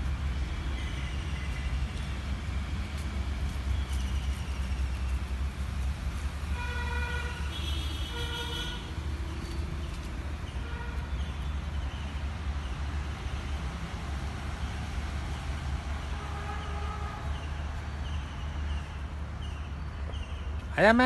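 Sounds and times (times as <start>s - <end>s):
road traffic rumble: 0.0s - 21.0s
vehicle horn tooting: 6.6s - 8.9s.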